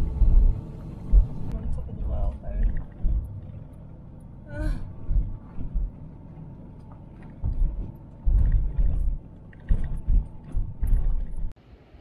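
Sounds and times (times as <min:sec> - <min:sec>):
heavy low thumps: 0:00.0 - 0:03.6, 0:04.5 - 0:06.2, 0:07.4 - 0:11.5
van engine and road rumble: 0:00.0 - 0:11.6.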